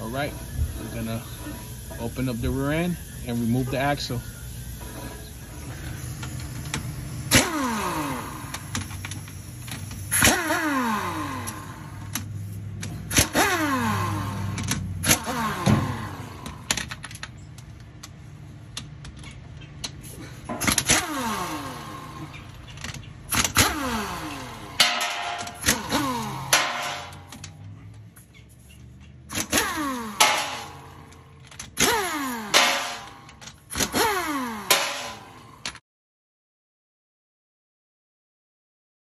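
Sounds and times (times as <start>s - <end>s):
impact wrench spinning bolts: 4.5s - 27.8s, 29.3s - 35.8s.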